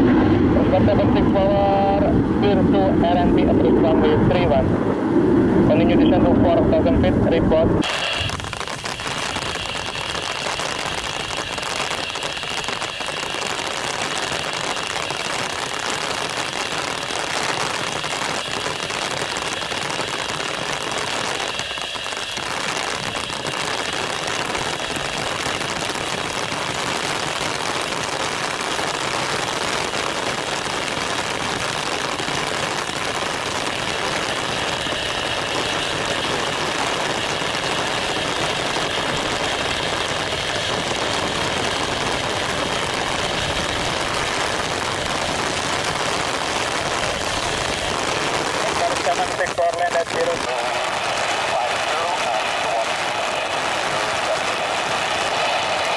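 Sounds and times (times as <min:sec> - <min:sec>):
thin high whine: 0:00.0 - 0:27.6
jet engines landing: 0:00.0 - 0:55.9
heavy rain falling: 0:07.8 - 0:55.9.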